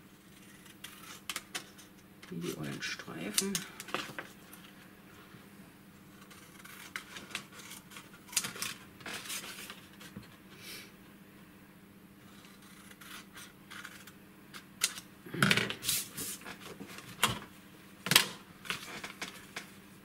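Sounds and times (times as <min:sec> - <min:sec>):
faint steady hum: 0:00.0 - 0:20.0
scissors snipping paper: 0:06.2 - 0:09.4
paper being handled: 0:06.6 - 0:10.2.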